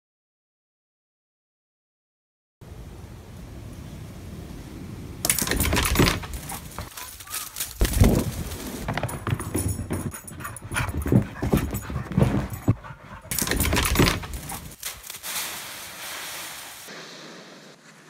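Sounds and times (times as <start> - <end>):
dogs play-fighting: 8.8 - 14.8
dog panting: 9.3 - 14.8
dog vocal sounds: 9.8 - 14.8
steady hiss: 14.8 - 18.0.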